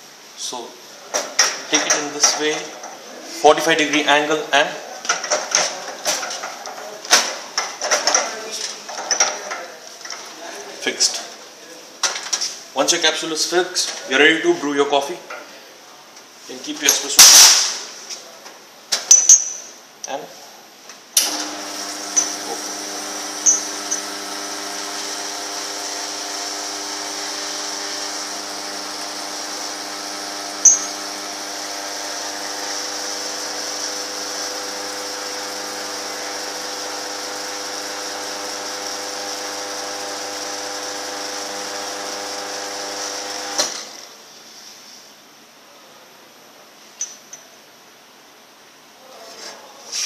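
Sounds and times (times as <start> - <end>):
espresso machine pump humming: 21.2 - 44.0.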